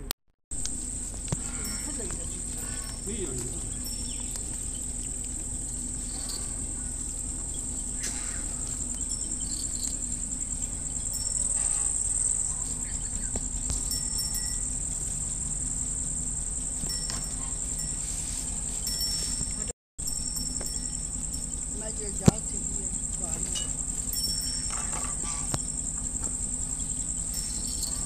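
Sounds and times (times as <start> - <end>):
crickets chirring: 0.5 - 28.0
rabbits chewing: 0.6 - 28.0.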